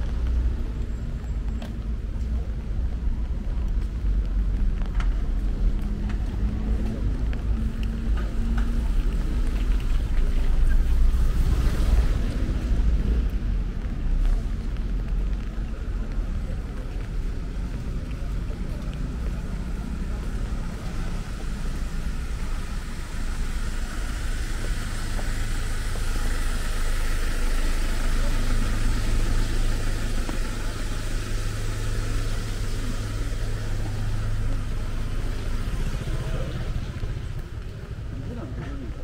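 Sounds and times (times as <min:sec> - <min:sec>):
vehicle engine running: 0:00.0 - 0:39.0
rain hissing: 0:07.1 - 0:38.1.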